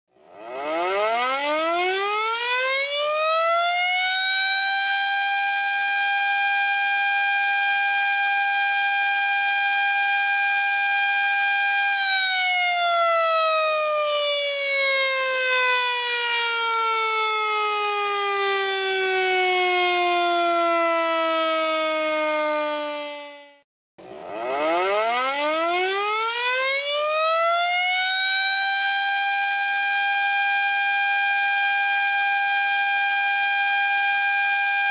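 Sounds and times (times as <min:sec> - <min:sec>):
siren winding up and down: 0:00.2 - 0:34.9.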